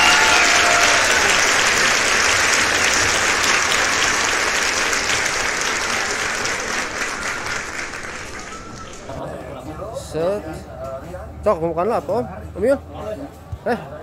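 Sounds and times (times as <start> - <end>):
applause: 0.0 - 9.2.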